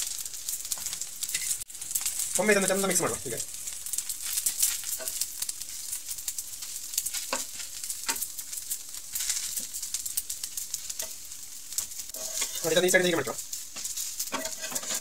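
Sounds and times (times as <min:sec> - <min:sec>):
batter sizzling on a hot griddle: 0:00.0 - 0:15.0
metal spatula scraping a pan: 0:00.8 - 0:01.6, 0:12.1 - 0:15.0.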